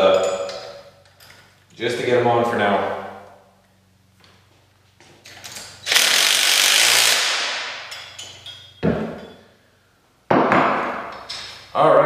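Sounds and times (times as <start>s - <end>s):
impact driver running bolts: 5.8s - 7.6s.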